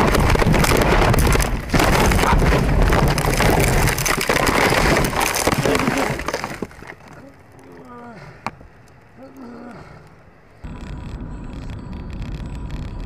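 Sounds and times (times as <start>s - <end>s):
car body crunching and scraping: 0.0s - 7.5s.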